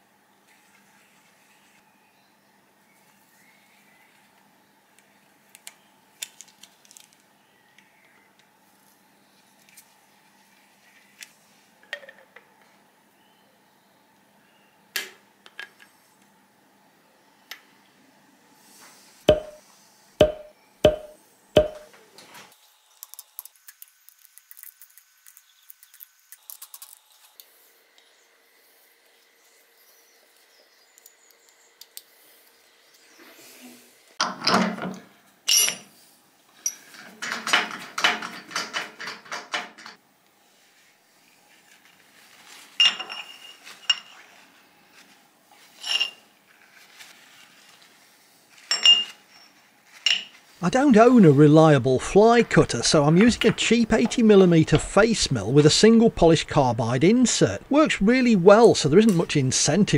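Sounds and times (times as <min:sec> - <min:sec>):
sharp metal knocks: 0:19.3 - 0:19.6, 0:20.2 - 0:21.9.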